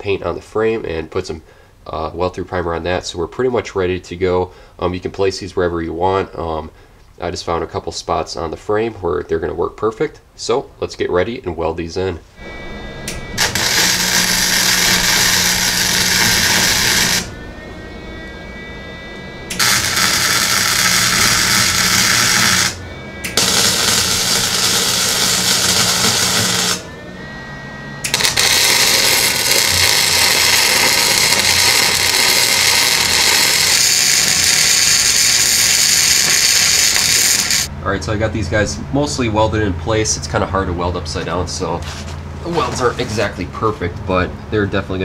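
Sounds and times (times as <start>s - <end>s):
arc welding crackling hiss: 13.4s - 17.3s, 19.5s - 26.9s, 28.0s - 37.7s.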